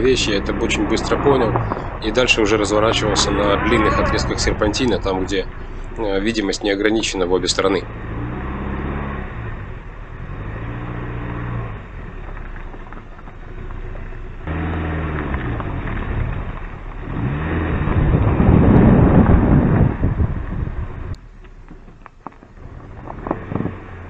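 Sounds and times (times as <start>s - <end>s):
car engine accelerating: 0.0s - 24.0s
tyre and road noise: 0.0s - 24.0s.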